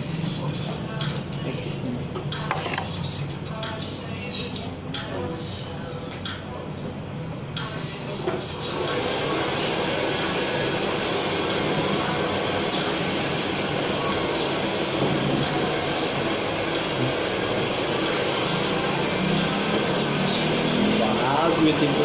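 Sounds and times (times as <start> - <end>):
blower running: 8.1 - 22.0.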